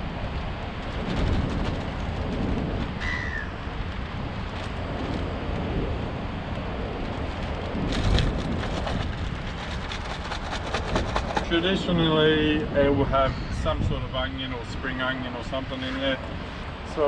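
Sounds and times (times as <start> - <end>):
steady rushing background noise: 0.0 - 17.0
plastic bag crinkling: 0.9 - 3.0, 4.3 - 5.5, 7.0 - 11.5.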